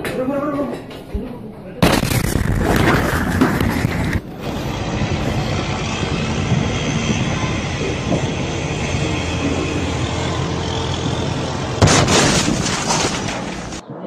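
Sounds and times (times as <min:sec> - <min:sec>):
explosion rumbling roar: 0:01.8 - 0:13.9.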